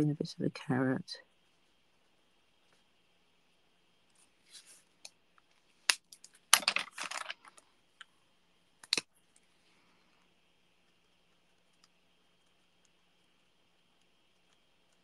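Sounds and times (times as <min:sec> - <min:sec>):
marker pens clicking and clattering: 0:05.9 - 0:07.6.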